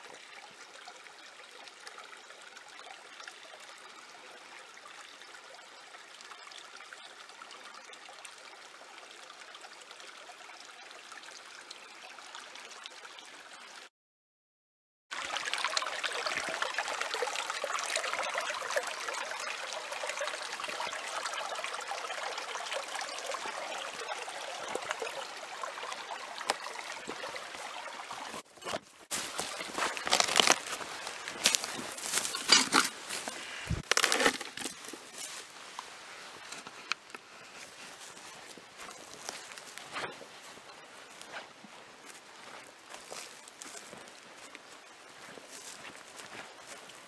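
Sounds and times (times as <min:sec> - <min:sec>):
creek water running: 0:00.0 - 0:13.9, 0:15.1 - 0:47.0
footsteps through ferns: 0:28.4 - 0:36.6, 0:37.4 - 0:47.0
brush crackling: 0:28.4 - 0:47.0.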